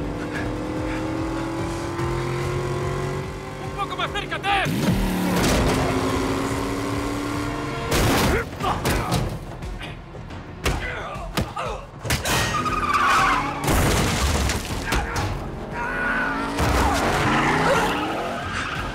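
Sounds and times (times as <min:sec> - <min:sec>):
car engines running: 0:00.0 - 0:08.6, 0:09.4 - 0:18.9
background music: 0:00.0 - 0:18.9
tyres skidding: 0:12.0 - 0:18.9.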